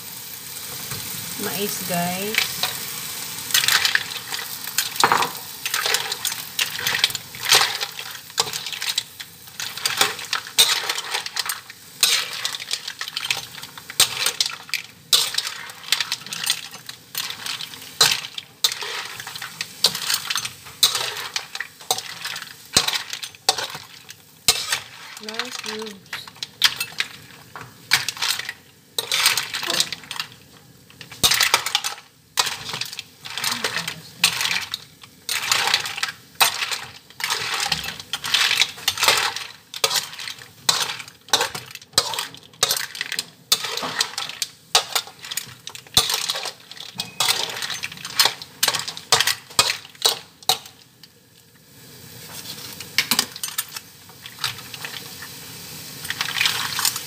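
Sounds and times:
food sizzling: 0.0s - 57.0s
metal spatula scraping a wok: 4.8s - 30.2s, 31.0s - 50.8s.

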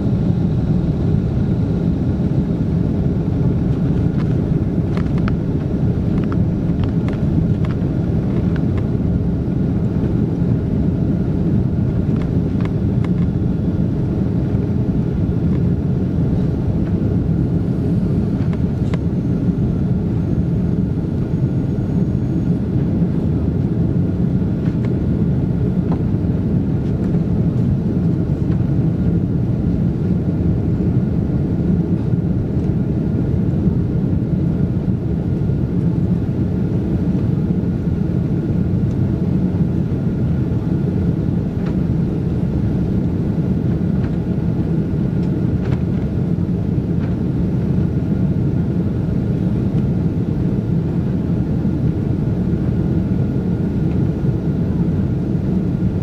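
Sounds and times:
faint steady whine: 0.0s - 56.0s
jet engines and airflow roar: 0.0s - 56.0s.

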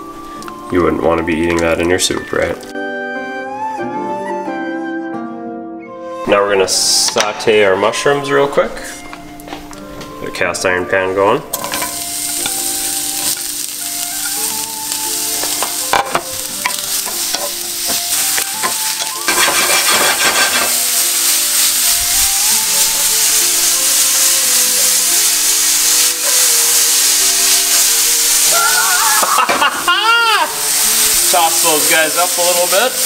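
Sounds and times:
mushrooms sizzling in a skillet: 0.0s - 2.8s, 11.5s - 33.0s.

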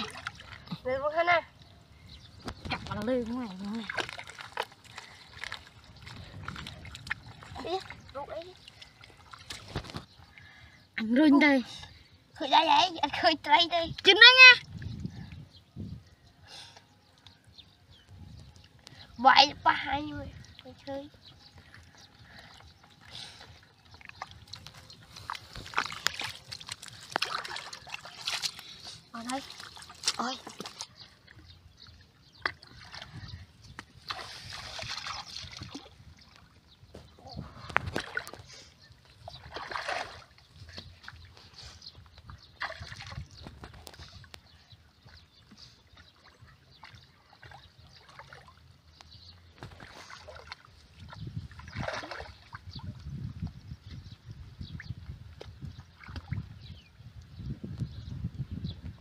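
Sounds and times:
pond water sloshing and splashing: 0.0s - 15.6s, 17.0s - 57.4s
hands squelching through wet mud: 2.4s - 10.2s, 21.6s - 31.5s, 32.2s - 52.9s.

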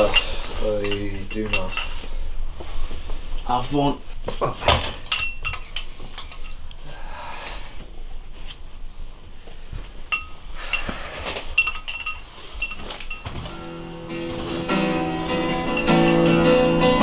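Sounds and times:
metal spoon clinking on ceramic bowl: 0.0s - 2.0s, 5.1s - 6.6s, 10.1s - 10.9s, 11.6s - 13.3s, 15.6s - 16.4s.

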